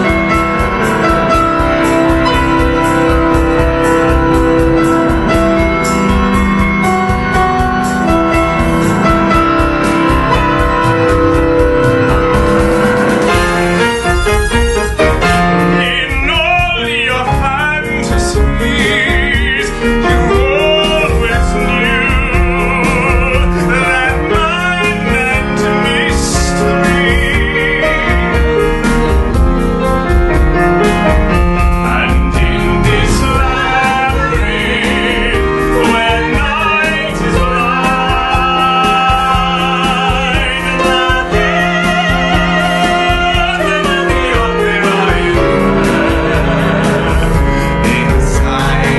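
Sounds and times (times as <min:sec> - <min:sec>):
grand piano: 0:00.0 - 0:48.9
classical singing with vibrato: 0:14.9 - 0:28.6, 0:31.4 - 0:48.9.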